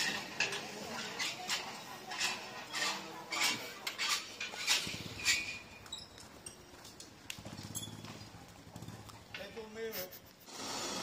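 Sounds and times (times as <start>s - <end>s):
sharp clicks and clinks: 3.9s - 8.3s.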